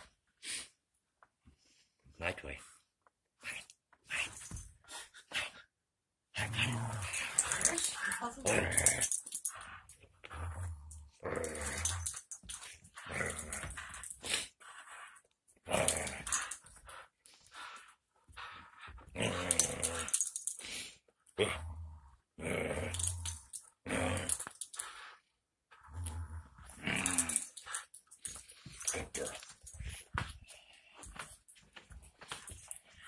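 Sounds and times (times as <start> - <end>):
dog growling in play: 6.3 - 9.6, 10.2 - 12.2, 13.0 - 14.9, 15.6 - 16.5, 19.0 - 20.2, 21.4 - 24.6, 25.7 - 27.8.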